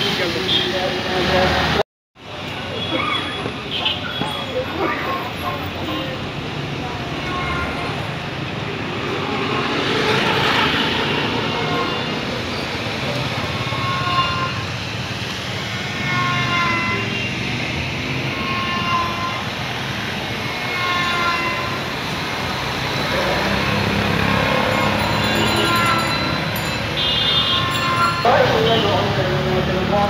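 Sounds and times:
street traffic noise: 0:00.0 - 0:30.0
short high horn tones: 0:24.4 - 0:29.1.

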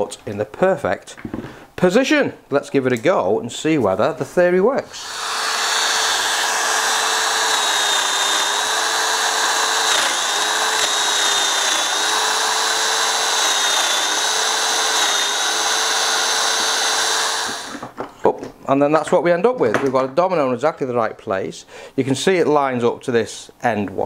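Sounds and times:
power joiner motor cutting wood: 0:04.9 - 0:17.8.

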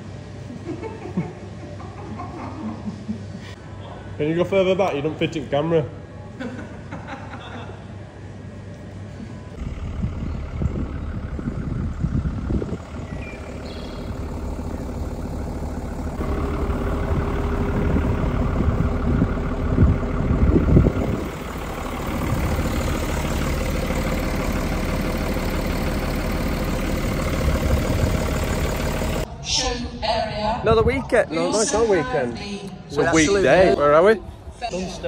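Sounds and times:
truck engine running: 0:08.2 - 0:29.3.

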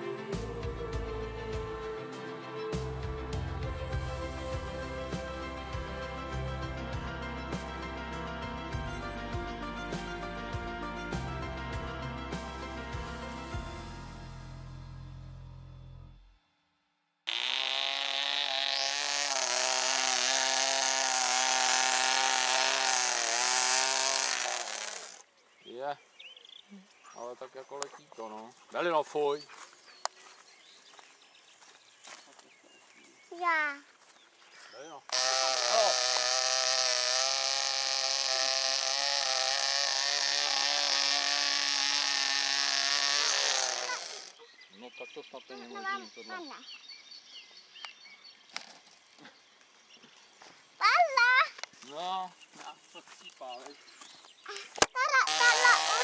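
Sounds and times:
model airplane engine buzzing: 0:17.3 - 0:25.2, 0:35.1 - 0:44.4, 0:55.2 - 0:56.0.

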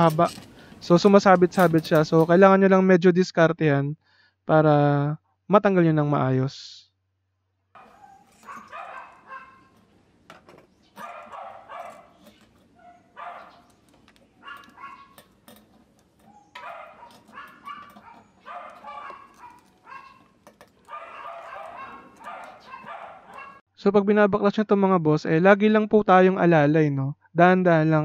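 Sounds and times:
dog barking: 0:07.8 - 0:09.7, 0:11.0 - 0:13.7, 0:14.4 - 0:15.2, 0:16.3 - 0:23.6.

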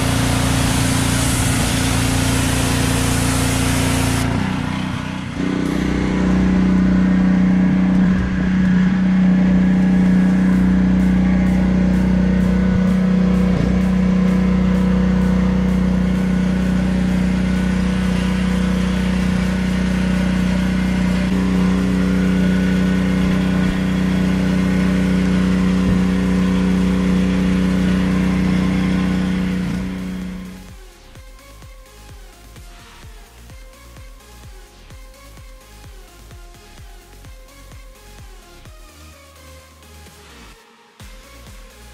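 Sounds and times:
small motor humming: 0:00.0 - 0:30.8.

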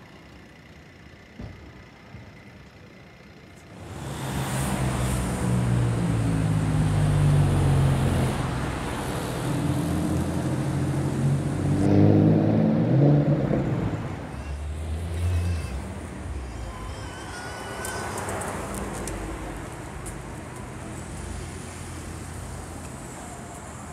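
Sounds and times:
car engine accelerating: 0:03.8 - 0:14.2.

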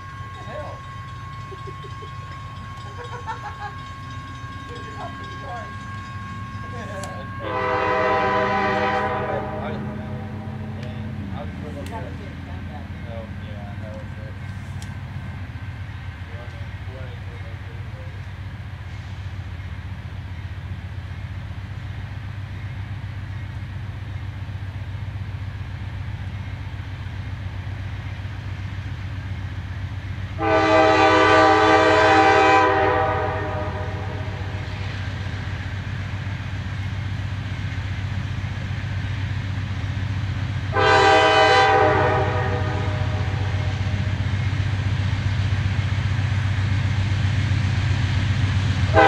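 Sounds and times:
diesel locomotive rumble: 0:00.0 - 0:49.0
locomotive air horn blasts: 0:07.3 - 0:10.3, 0:30.4 - 0:34.7, 0:40.7 - 0:44.1.

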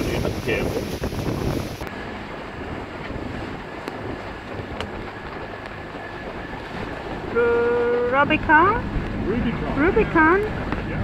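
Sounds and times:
water washing along hulls: 0:00.0 - 0:11.0
wind rumbling on microphone: 0:00.0 - 0:11.0.

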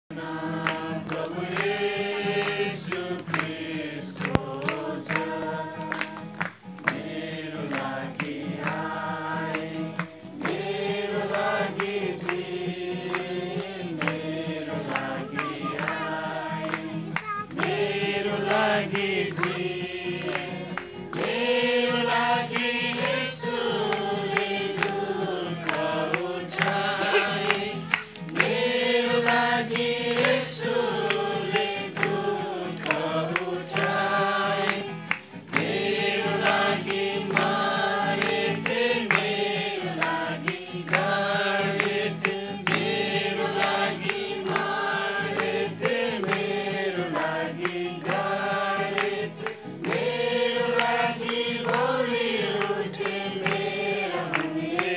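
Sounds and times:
group singing a hymn: 0:00.1 - 0:54.9.

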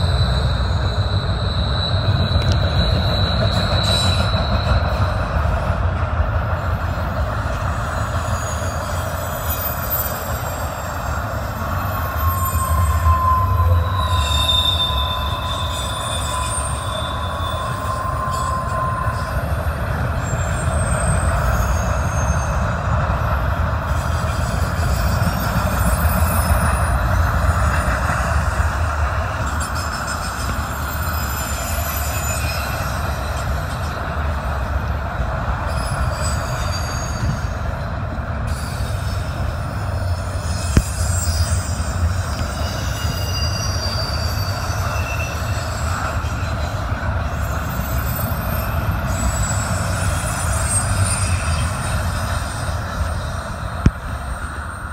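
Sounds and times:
wheel squeal: 0:00.0 - 0:05.6, 0:06.8 - 0:34.9, 0:35.5 - 0:54.9
train wheels rumbling on rail: 0:00.0 - 0:54.9.

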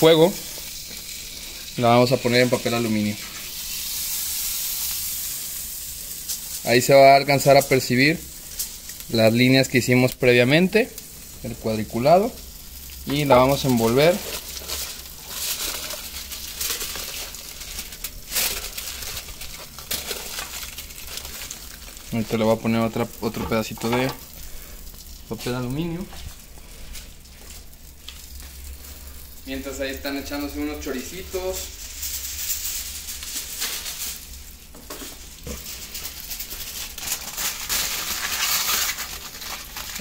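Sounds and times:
aluminium foil crinkling: 0:00.0 - 0:40.0
grill sizzling: 0:00.0 - 0:40.0.

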